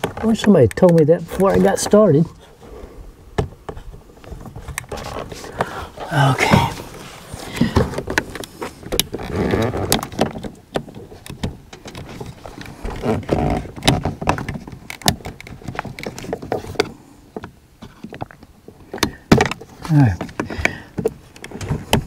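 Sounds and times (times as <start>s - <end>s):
rustling handling sounds: 0.0s - 2.8s, 3.5s - 22.0s.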